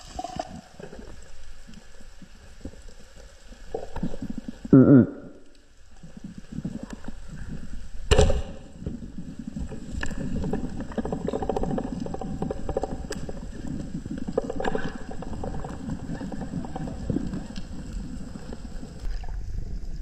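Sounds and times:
small underwater clicks: 0.0s - 4.7s, 5.4s - 19.4s
underwater rush: 0.0s - 20.0s
speargun firing underwater: 8.1s - 8.7s.

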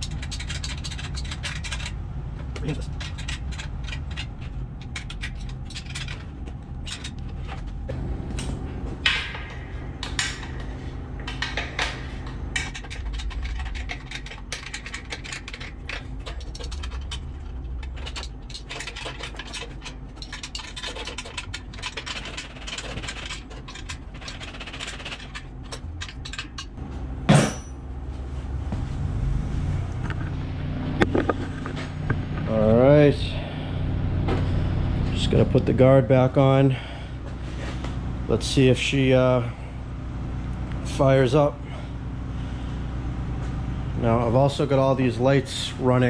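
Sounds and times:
metal clinking and scraping: 0.0s - 27.8s
low hum: 0.0s - 46.0s.

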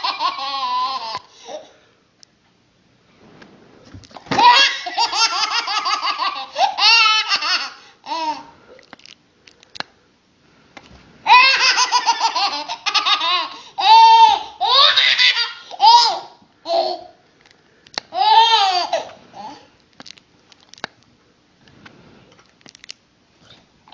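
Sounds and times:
baby laughing: 0.0s - 1.7s, 4.3s - 8.5s, 11.3s - 17.2s, 18.1s - 19.6s.

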